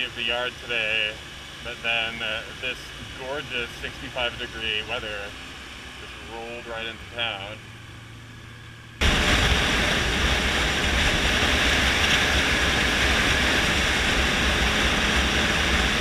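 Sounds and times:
motorcycle engine rumbling: 0.0 - 16.0
wind rush: 9.0 - 16.0.

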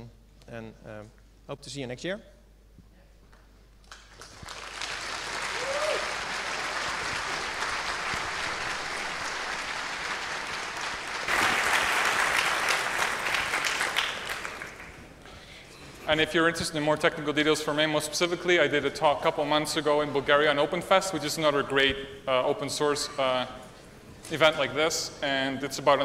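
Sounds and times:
audience applause: 3.9 - 15.2.

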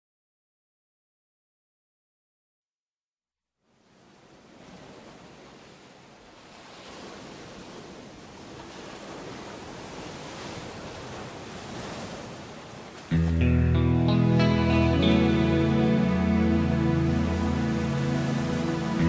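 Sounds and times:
ocean surf rushing: 3.8 - 19.0.

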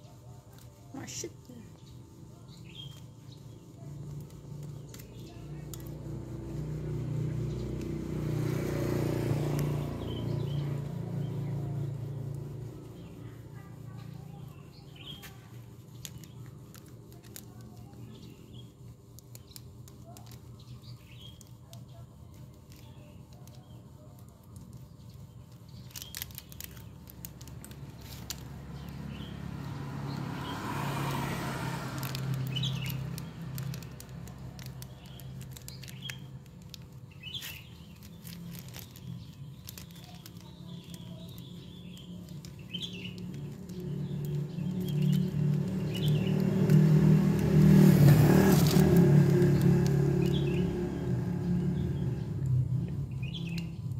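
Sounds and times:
birds chirping: 0.0 - 53.9
plastic packaging crinkling: 15.1 - 18.3, 19.1 - 29.7, 30.6 - 50.7.

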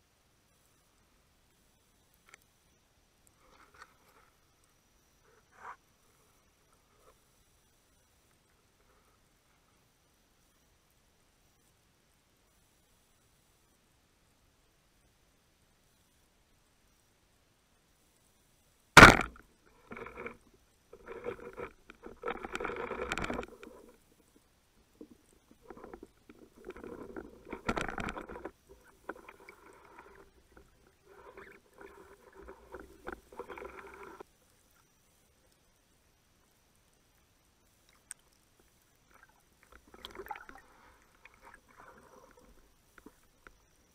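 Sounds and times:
speargun firing crack: 19.0 - 19.4.

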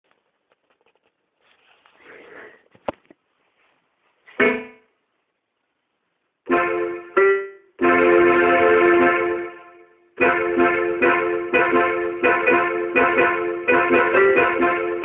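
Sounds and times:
instrument chords: 4.4 - 4.9, 6.5 - 15.0.

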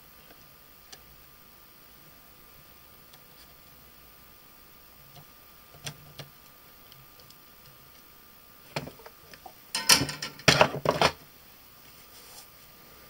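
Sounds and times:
tools clattering on workbench: 9.7 - 11.2.

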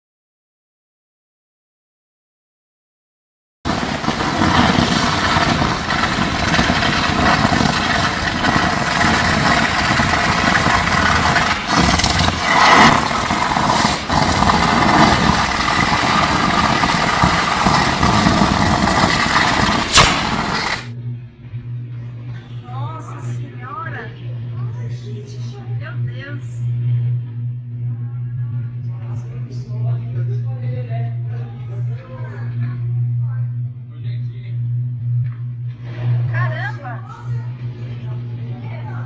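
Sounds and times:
electric arc cracks: 3.7 - 21.0
electric arc roaring: 3.7 - 39.0.

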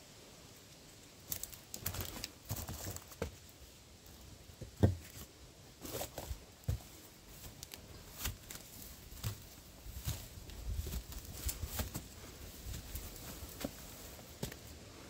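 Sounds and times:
crackles and crunches: 1.2 - 3.4, 5.0 - 14.7.

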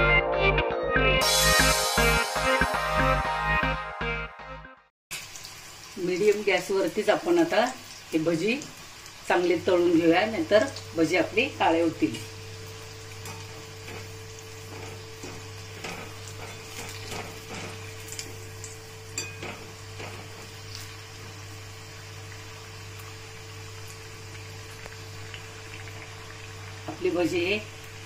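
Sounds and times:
food sizzling in hot oil: 5.1 - 28.0
wire skimmer clinking against pan: 19.1 - 20.3.

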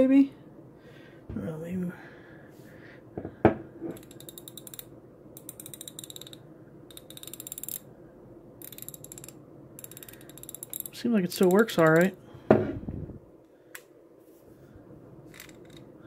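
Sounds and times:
ratchet clicking: 4.0 - 7.8, 8.6 - 12.1.

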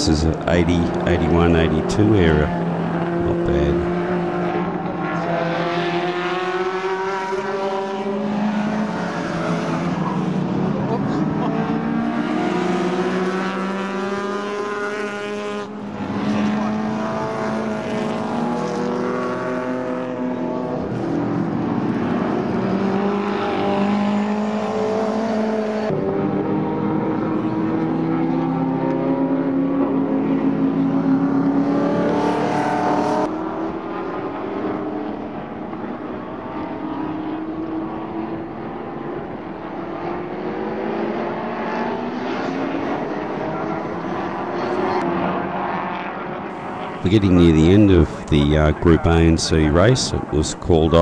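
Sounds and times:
racing car engines revving: 0.0 - 51.0.

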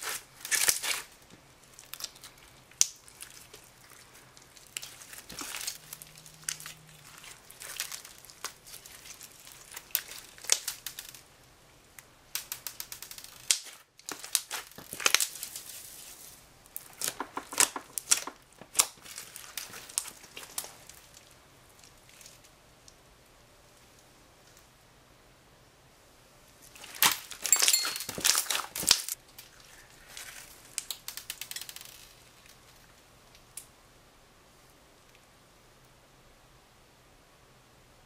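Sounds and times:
slime crackling and popping: 0.0 - 11.2, 12.3 - 15.8, 16.6 - 22.5, 26.8 - 29.5, 30.1 - 32.6.

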